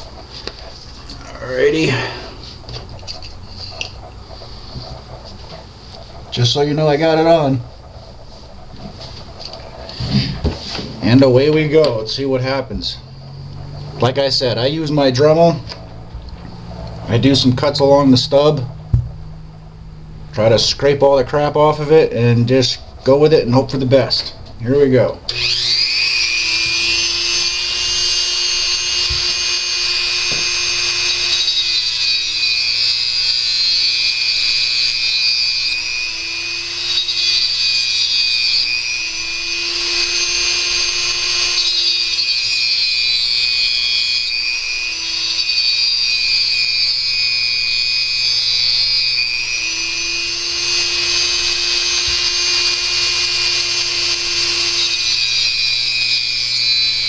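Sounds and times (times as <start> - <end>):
rotary tool whining: 0.0 - 19.8, 25.2 - 57.0.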